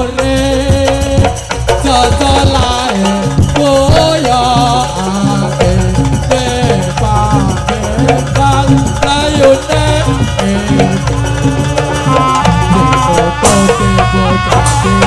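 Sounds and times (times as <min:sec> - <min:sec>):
hand drums: 0:00.0 - 0:15.0
pitched percussion: 0:00.0 - 0:15.0
wavering melody line: 0:04.5 - 0:15.0.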